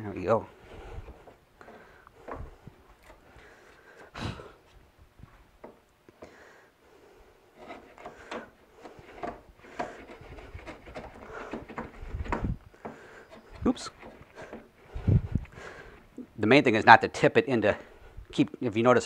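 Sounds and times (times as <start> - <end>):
router plane scraping wood: 7.5 - 15.0.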